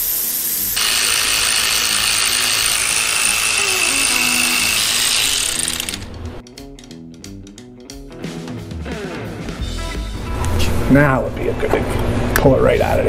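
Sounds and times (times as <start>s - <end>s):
power ratchet hissing and whining: 0.0s - 6.4s.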